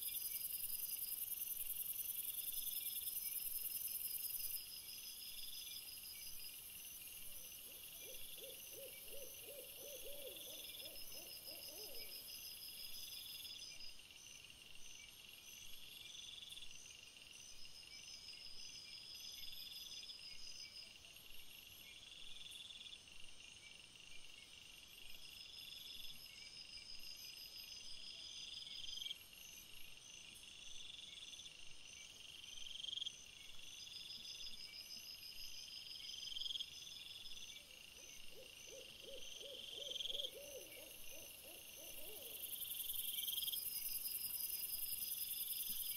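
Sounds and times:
insects chirring: 0:32.8 - 0:45.9.

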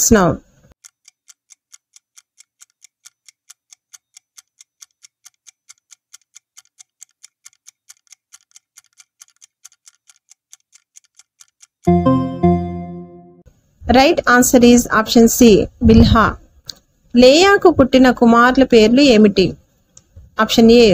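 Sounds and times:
clock ticking: 0:00.7 - 0:12.0.

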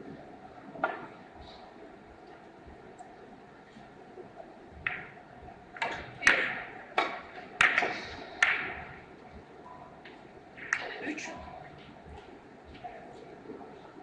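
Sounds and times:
billiard balls clicking: 0:04.8 - 0:05.2, 0:05.8 - 0:09.1, 0:10.6 - 0:11.0.

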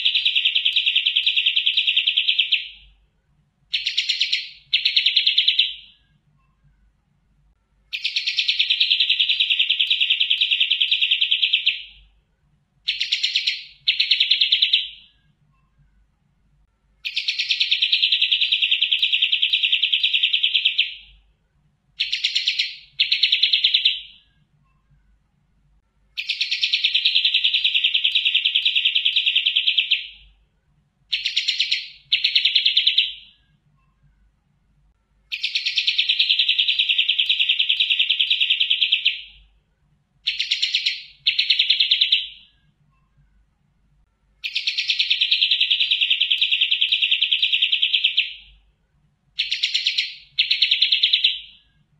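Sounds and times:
songbird buzzy trill: 0:03.7 - 0:06.8, 0:07.7 - 0:12.1, 0:12.8 - 0:15.8, 0:16.8 - 0:21.2, 0:22.0 - 0:25.0, 0:31.1 - 0:34.1, 0:40.2 - 0:43.2.

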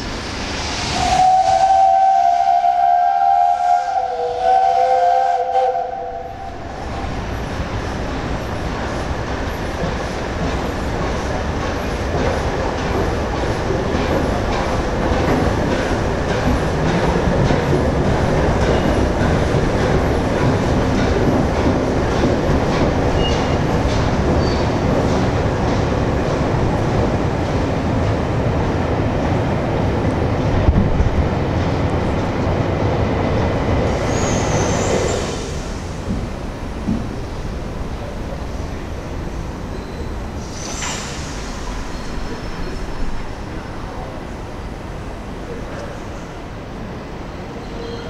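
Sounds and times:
train wheels on rails: 0:00.0 - 0:48.0
steam locomotive whistle: 0:01.0 - 0:06.6.

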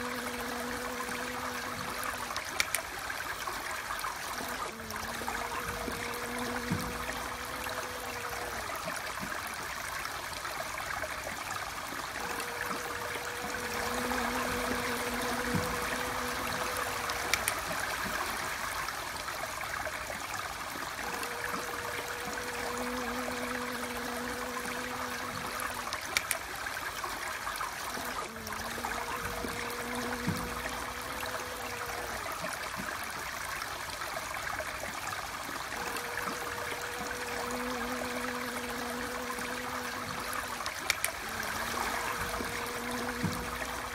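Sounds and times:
flowing water: 0:00.0 - 0:43.9.

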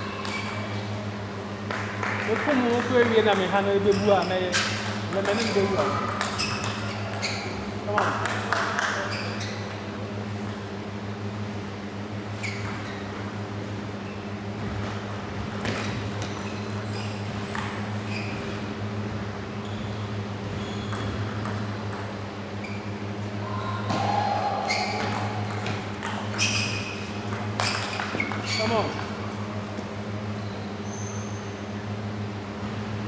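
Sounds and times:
steady low hum: 0:00.0 - 0:33.0
table tennis ball clicking: 0:04.8 - 0:07.3, 0:20.9 - 0:22.1, 0:27.2 - 0:28.8.

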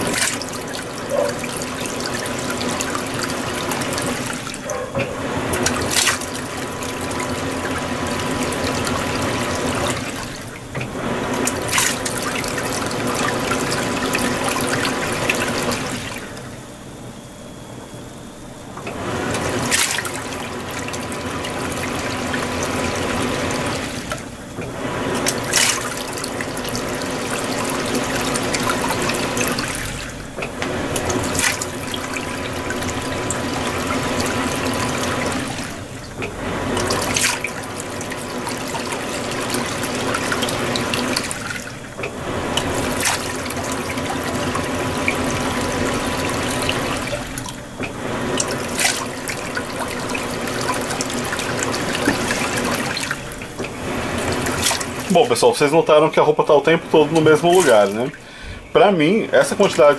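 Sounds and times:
steady hum: 0:00.0 - 0:59.9
water churning in washing machine: 0:00.0 - 0:59.9.

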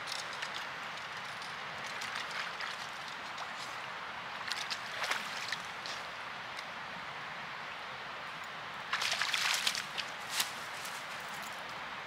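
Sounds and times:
small splashes and clicks: 0:00.0 - 0:03.8, 0:04.4 - 0:06.7, 0:08.9 - 0:10.5
stream trickling: 0:00.0 - 0:12.0.

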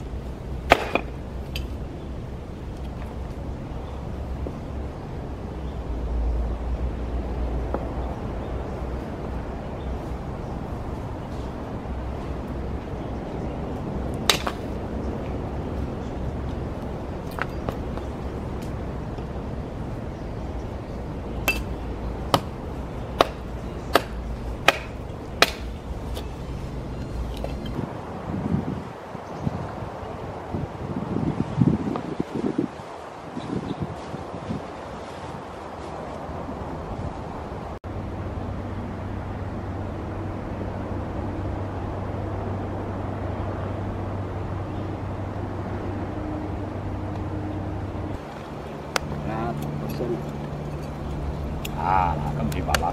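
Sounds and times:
outdoor background noise: 0:00.0 - 0:52.9
hatchet chopping wood: 0:00.7 - 0:01.7, 0:14.3 - 0:14.6, 0:21.4 - 0:22.6, 0:23.2 - 0:26.3
wind on microphone: 0:01.2 - 0:37.8
low mechanical hum: 0:37.9 - 0:52.9.

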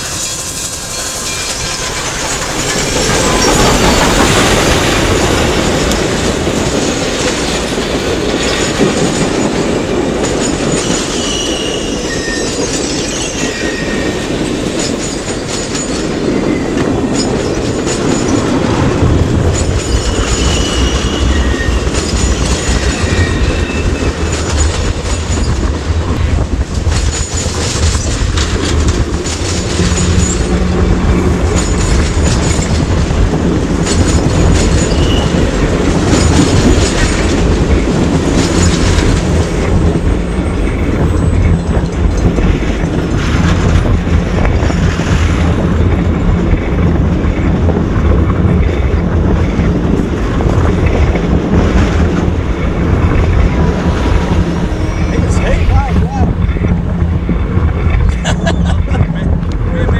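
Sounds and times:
train wheels clicking over rail joints: 0:00.0 - 0:59.9
high wheel squeals: 0:10.7 - 0:15.2, 0:19.6 - 0:25.7, 0:34.7 - 0:35.6.

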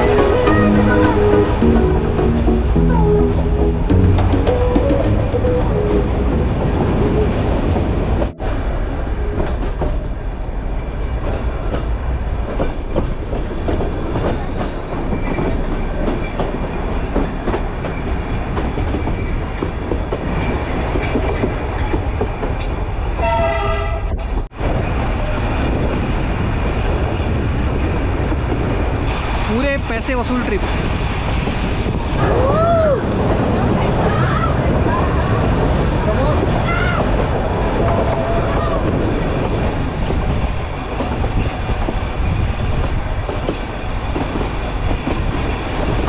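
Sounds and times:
train wheels rattling on rails: 0:03.9 - 0:46.0
train horn blast: 0:23.2 - 0:24.1.

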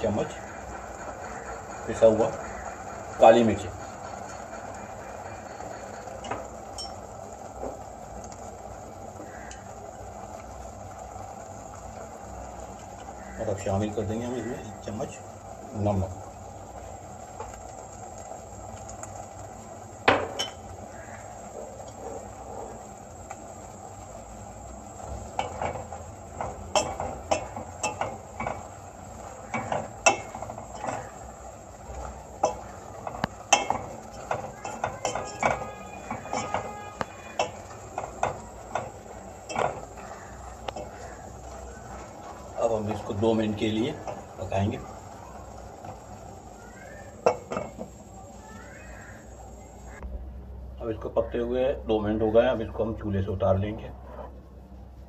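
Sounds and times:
pot boiling with bubbling hiss: 0:00.0 - 0:55.0
spoon scraping a metal pot: 0:32.4 - 0:40.1.

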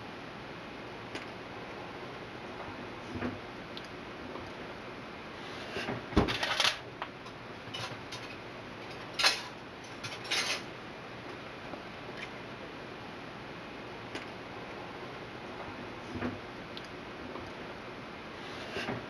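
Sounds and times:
metal baking tray clatter: 0:07.7 - 0:10.7.

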